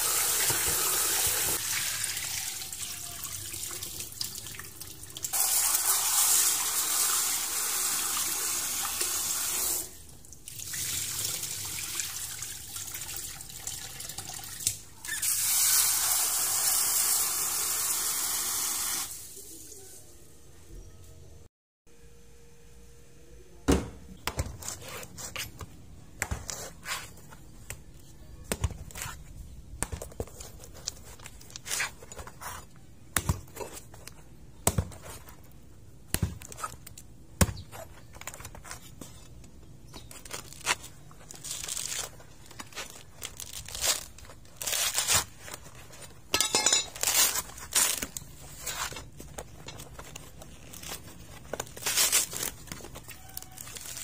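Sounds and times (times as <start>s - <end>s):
husk fibres tearing: 40.0s - 45.7s, 47.0s - 49.1s, 49.8s - 54.0s.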